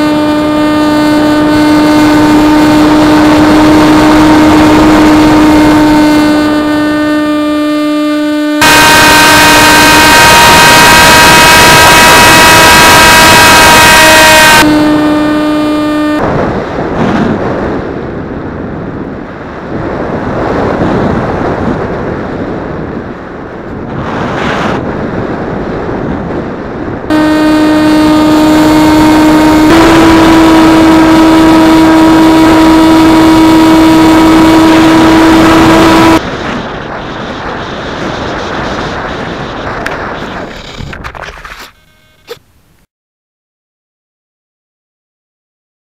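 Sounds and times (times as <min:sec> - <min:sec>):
wind rushing over camera: 0:16.2 - 0:27.1, 0:35.3 - 0:41.7.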